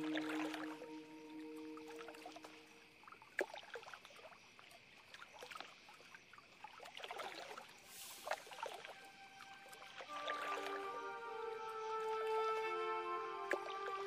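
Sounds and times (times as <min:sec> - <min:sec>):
feet splashing through water: 0:00.0 - 0:14.0
water rushing over stones: 0:06.9 - 0:14.0.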